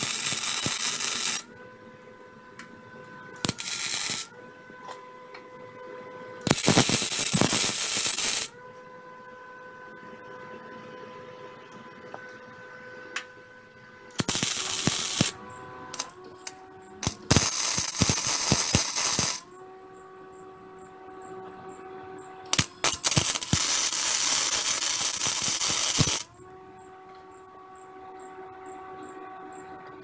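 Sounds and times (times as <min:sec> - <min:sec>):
welder arc crackling: 0:00.0 - 0:01.5, 0:03.4 - 0:04.3, 0:06.4 - 0:08.5, 0:14.1 - 0:19.5, 0:22.5 - 0:26.3.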